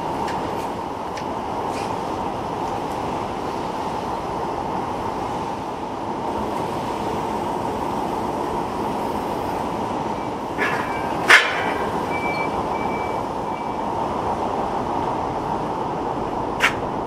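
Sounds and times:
factory machinery noise: 0.0 - 17.0
forklift running: 0.0 - 17.0
sharp metal clanks: 10.6 - 11.9.

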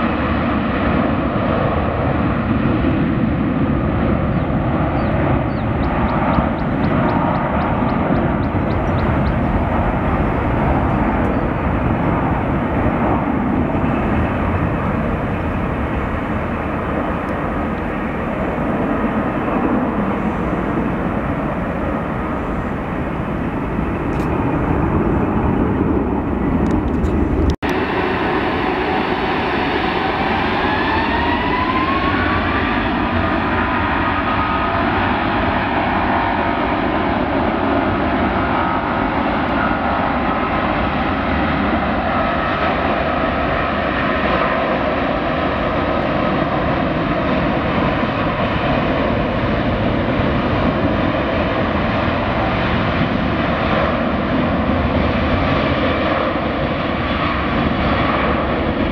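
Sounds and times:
jet engines rumbling with whine: 0.0 - 58.9.

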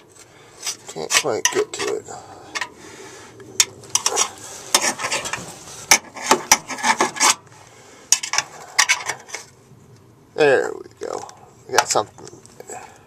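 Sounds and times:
screwdriver scraping metal: 3.9 - 7.4.

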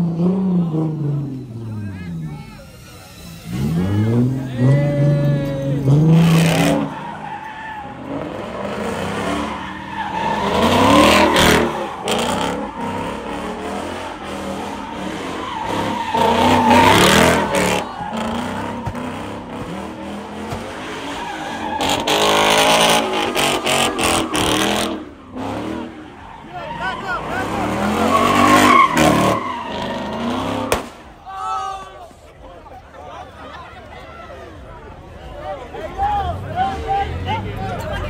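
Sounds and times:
tires squealing: 0.0 - 38.0
car engine revving hard: 3.4 - 7.0, 8.0 - 26.1, 27.1 - 30.9.

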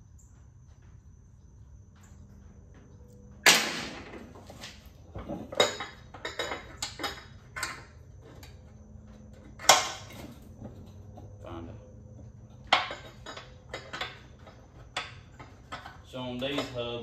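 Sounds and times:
loud metallic clank: 3.4 - 4.2
metal tools clinking: 5.1 - 8.7, 12.4 - 17.0.

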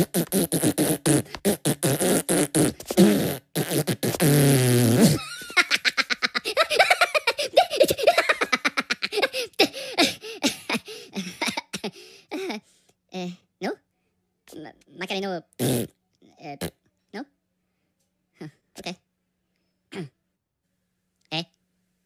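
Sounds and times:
cartoon characters laughing: 5.2 - 11.8.

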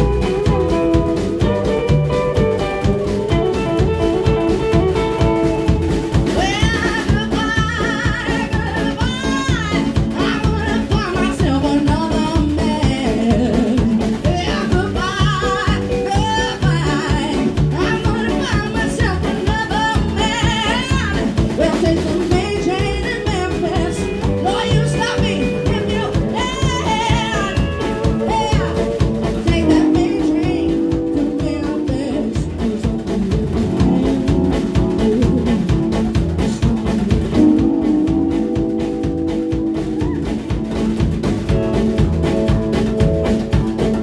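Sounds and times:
drum kit beat: 0.0 - 44.0
electric guitar: 0.0 - 44.0
woman singing: 6.0 - 38.8.

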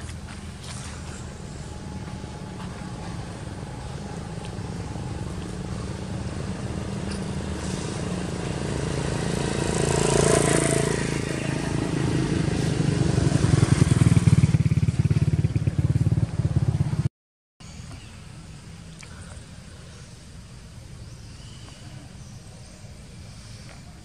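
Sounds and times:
motorcycle engine running: 0.0 - 17.1.

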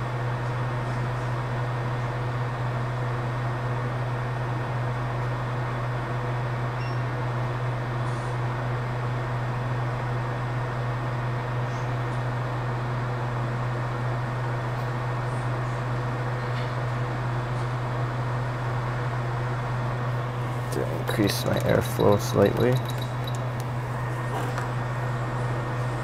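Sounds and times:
steady low hum: 19.2 - 26.0
hot air station blowing: 20.2 - 26.0.

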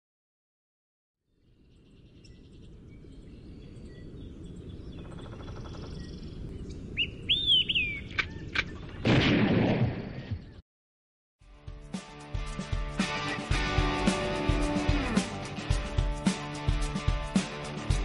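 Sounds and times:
birds whistling and chirping: 1.7 - 9.0.

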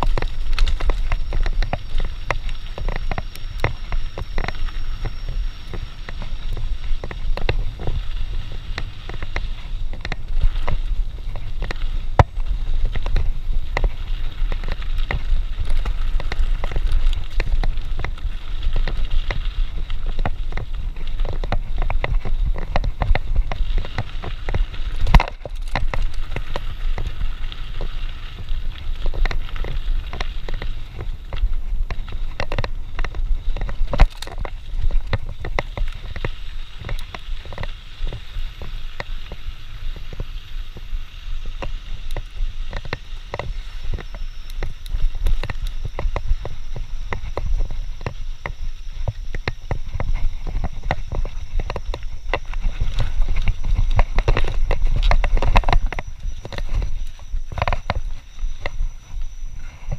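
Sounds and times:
bike clattering and rattling: 0.0 - 59.9
wind: 0.0 - 59.9.

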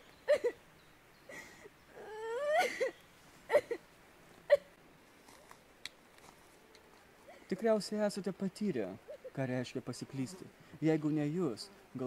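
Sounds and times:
woman sobbing and wailing: 0.3 - 0.6, 1.3 - 3.8, 9.0 - 9.4.

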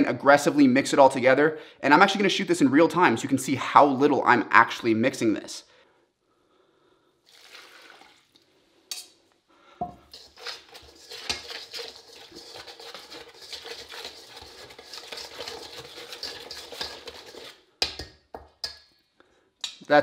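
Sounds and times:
whisk beating batter in metal bowl: 10.0 - 18.9.

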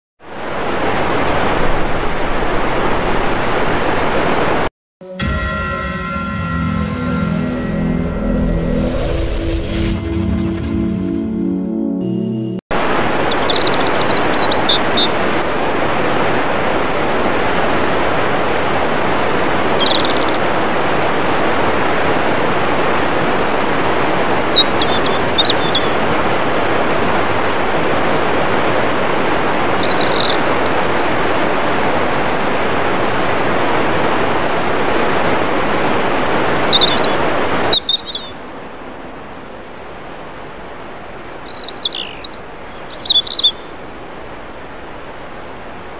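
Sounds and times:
waterfall rushing over rocks: 0.3 - 4.7, 12.8 - 45.9
bird chirps: 13.3 - 15.3, 19.4 - 20.4, 24.4 - 25.9, 29.8 - 31.1, 36.5 - 38.9, 41.5 - 44.3.

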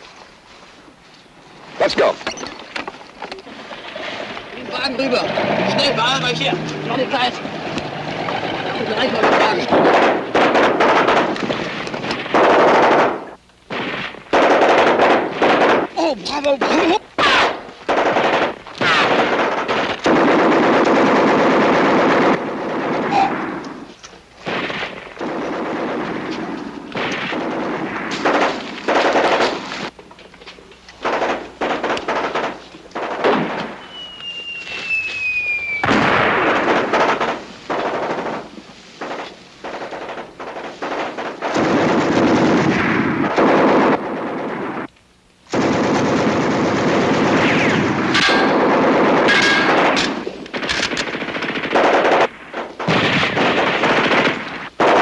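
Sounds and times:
machine-gun fire: 4.0 - 29.9, 31.0 - 44.9, 45.5 - 55.0
rifle shots: 4.7 - 29.9, 31.0 - 44.9, 45.5 - 55.0
falling whistle: 33.8 - 36.0.

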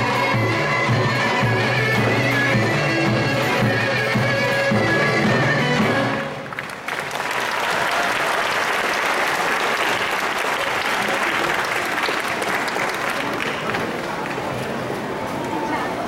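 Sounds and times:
folk dance music: 0.0 - 6.8
audience applauding: 6.3 - 14.8.

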